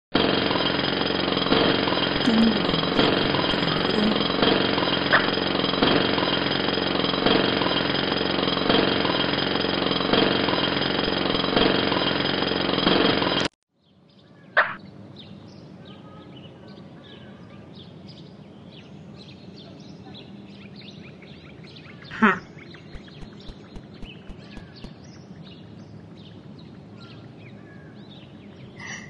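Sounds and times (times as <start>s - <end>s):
jackhammer hammering: 0.2s - 13.5s, 23.0s - 25.2s.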